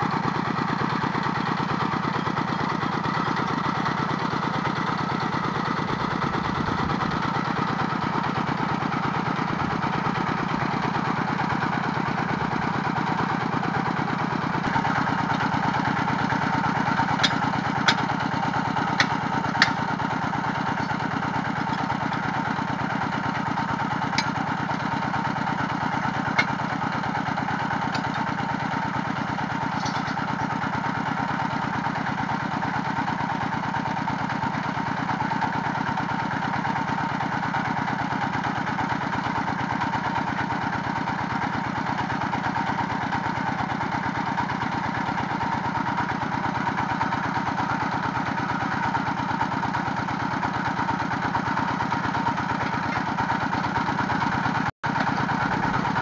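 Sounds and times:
drilling rig engine running: 0.0s - 56.0s.

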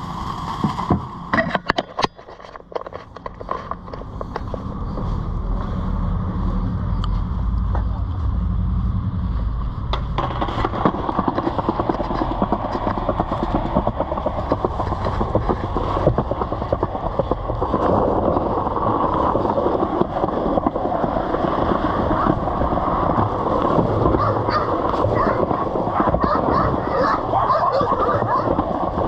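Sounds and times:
skateboard wheels rolling on concrete: 0.0s - 29.0s.

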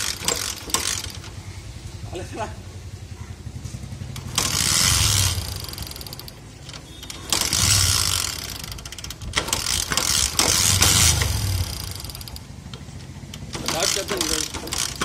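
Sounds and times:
motorcycle engine cranking: 0.0s - 15.0s.

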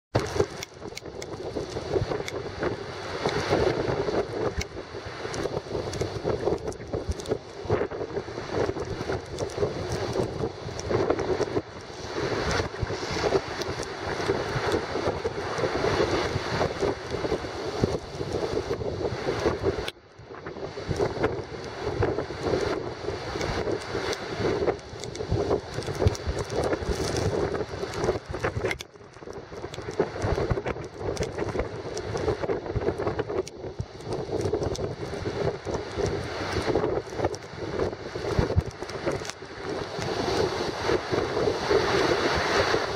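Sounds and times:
wind buffeting microphone: 0.1s - 42.9s
waves crashing against jetty: 0.2s - 19.9s
seawater rushing: 0.2s - 42.9s
waves breaking on a jetty: 0.2s - 42.9s.

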